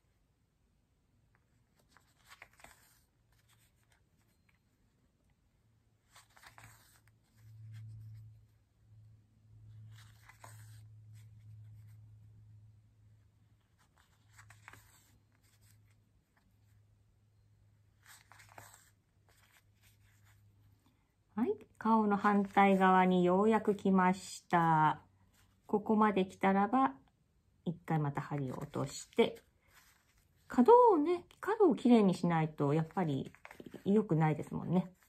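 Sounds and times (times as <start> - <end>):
faint low hum: 0.0 - 35.0
needle and thread drawn through fabric: 6.0 - 8.6, 9.7 - 12.3, 17.9 - 20.8, 28.1 - 35.0.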